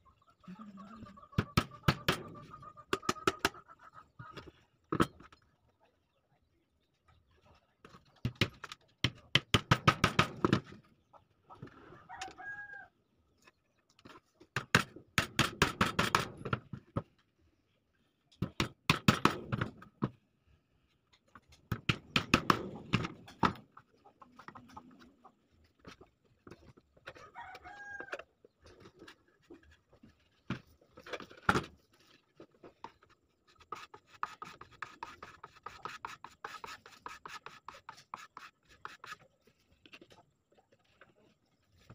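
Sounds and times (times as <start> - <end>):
hammer driving nails into wood: 8.4 - 10.6, 14.6 - 16.6, 18.4 - 19.8.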